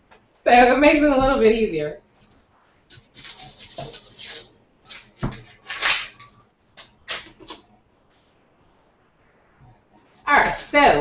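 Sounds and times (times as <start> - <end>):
rustling scrapes on cutting board: 2.5 - 7.6.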